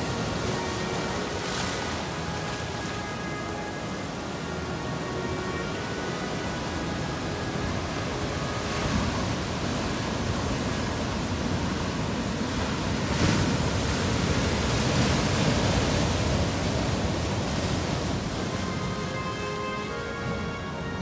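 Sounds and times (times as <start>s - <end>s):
ocean waves rushing: 0.0s - 21.0s.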